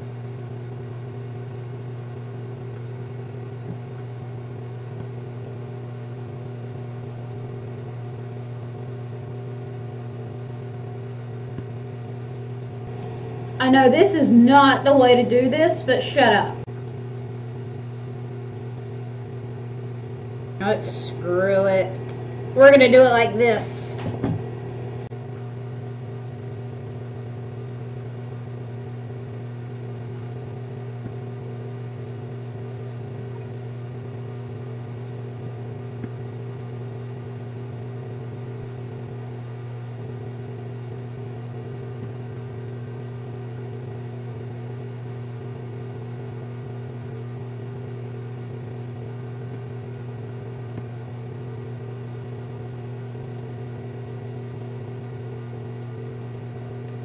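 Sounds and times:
electric fan humming: 0.0s - 57.0s.

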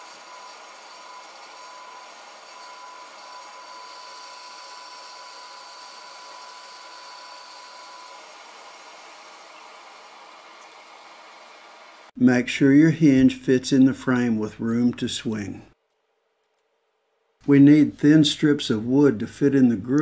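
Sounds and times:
saw blade whine cutting wood: 0.0s - 10.2s.

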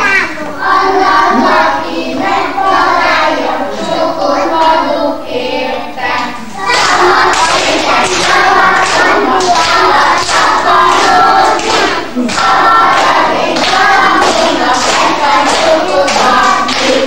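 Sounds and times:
children singing: 0.0s - 17.0s
children clapping hands: 6.2s - 17.0s.

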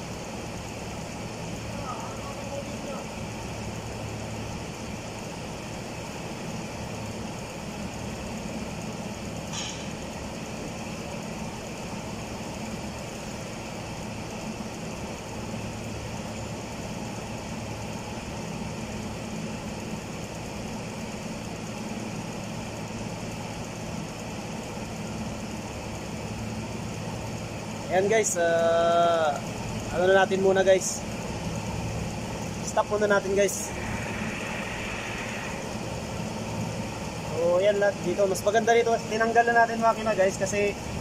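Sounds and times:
short sharp click: 9.5s - 9.9s
motor humming: 29.2s - 39.3s.

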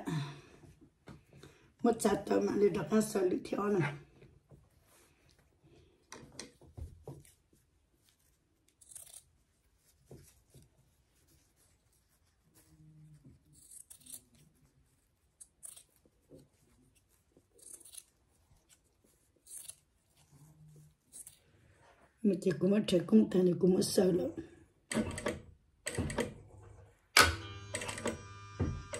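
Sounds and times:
fabric shears snipping: 8.6s - 10.3s, 13.5s - 14.5s, 15.3s - 16.1s, 17.5s - 20.2s.

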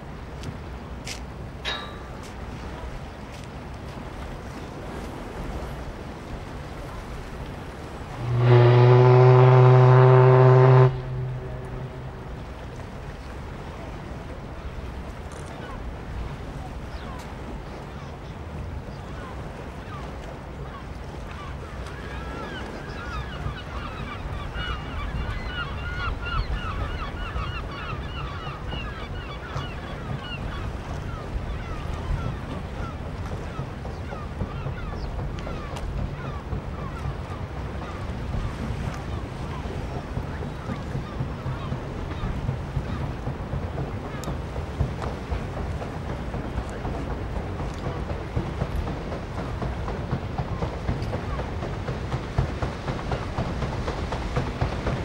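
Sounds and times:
water noise: 0.0s - 55.0s
wind: 0.0s - 55.0s
steady low rumble: 5.2s - 14.9s
deep steam whistle blast: 8.2s - 12.3s.

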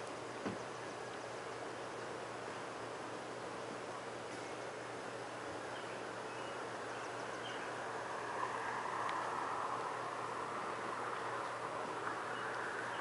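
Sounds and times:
outdoor background hiss: 0.0s - 13.0s
passing vehicle: 6.8s - 13.0s.

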